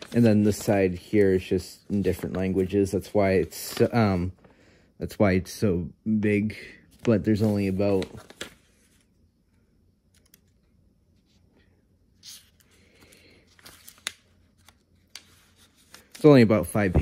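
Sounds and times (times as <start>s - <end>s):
paper pages rustling: 0.0s - 4.5s, 6.9s - 9.2s, 12.2s - 17.0s.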